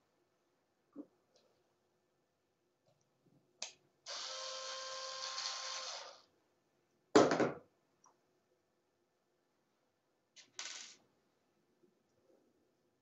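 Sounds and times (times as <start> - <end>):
power screwdriver whirring: 4.1 - 6.2.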